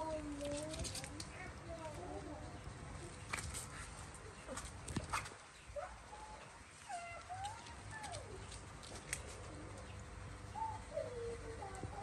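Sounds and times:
baby monkey calling: 10.5s - 11.7s.

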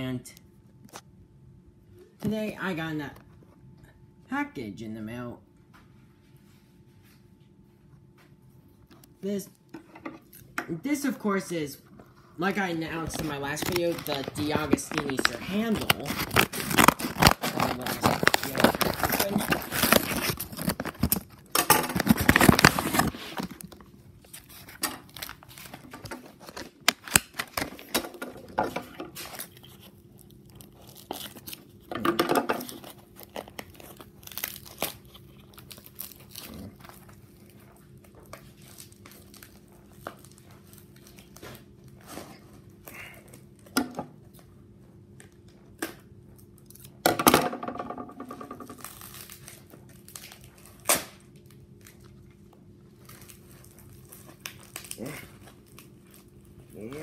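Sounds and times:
cardboard and plastic crinkling: 12.6s - 42.8s, 48.4s - 57.0s.

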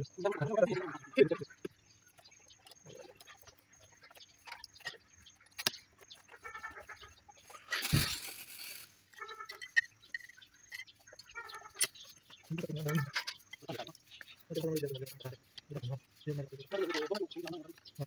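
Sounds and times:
chickens clucking: 0.0s - 8.1s, 9.1s - 18.0s.

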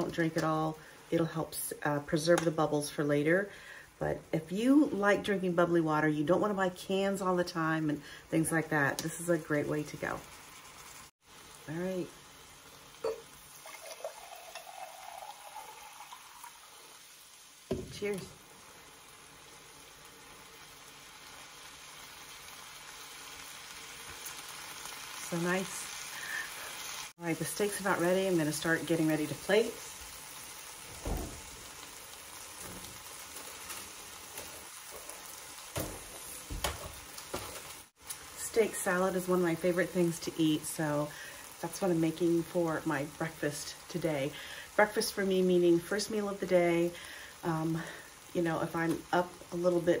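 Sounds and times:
steak sizzling in a pan: 8.6s - 50.0s
carbonated water pouring into glass: 13.4s - 17.0s.

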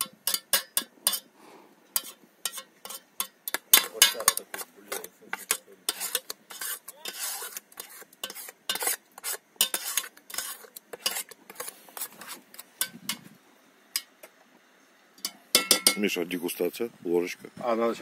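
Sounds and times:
metal spoon scraping cookware: 0.0s - 1.3s, 2.0s - 13.3s.

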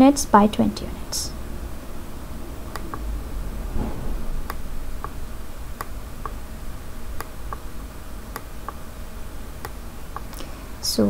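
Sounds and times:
low steady hum: 0.0s - 11.0s
computer mouse buttons clicking: 2.8s - 3.0s.

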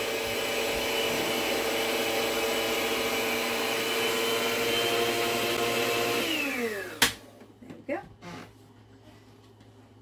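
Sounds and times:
stand mixer motor whine: 0.0s - 7.2s.

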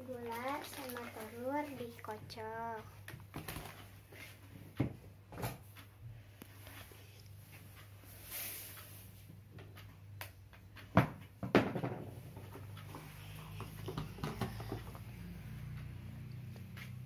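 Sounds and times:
kitchen items knocking on counter: 10.9s - 12.1s.

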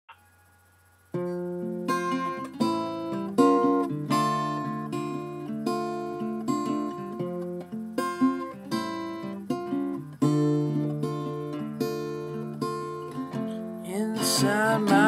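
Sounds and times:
acoustic guitar chords: 0.2s - 15.0s.

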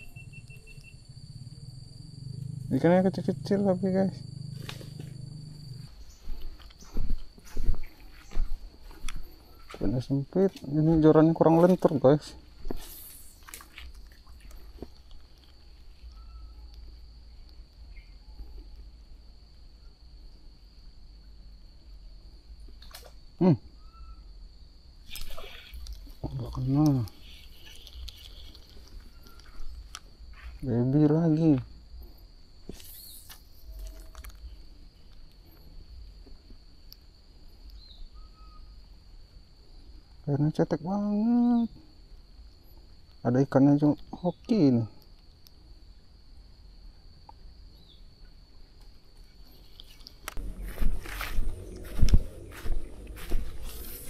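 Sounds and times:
bird chirps: 0.0s - 2.7s, 16.0s - 18.6s, 23.8s - 24.3s, 37.7s - 38.8s
low rumble: 0.0s - 6.4s, 50.3s - 54.0s
high-pitched insect drone: 0.0s - 14.8s, 23.8s - 36.1s, 49.6s - 54.0s
low wind rumble: 50.3s - 54.0s.

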